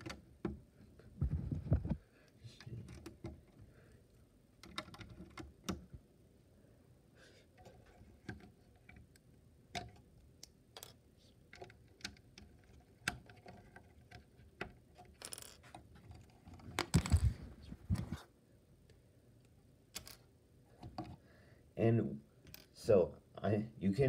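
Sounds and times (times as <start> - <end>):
hand rustling and knocking: 0.0 - 2.0, 12.0 - 18.3
plastic bricks clicking: 10.7 - 17.3.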